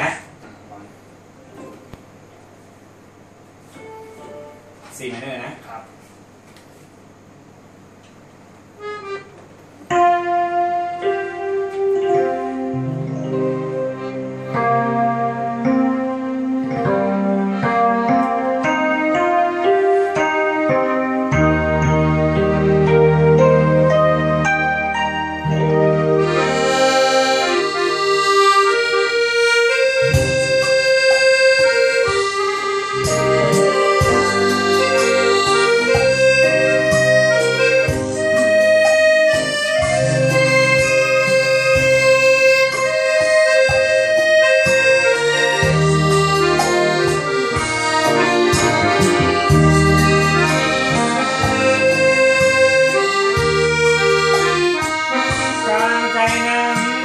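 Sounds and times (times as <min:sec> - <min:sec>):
accordion melody: 0:02.6 - 0:05.1, 0:08.7 - 0:57.0
electronic organ bass and chords: 0:08.3 - 0:57.0.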